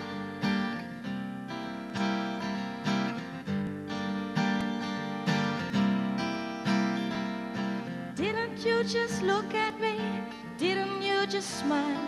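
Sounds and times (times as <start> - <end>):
acoustic guitar strumming: 0.0 - 12.0.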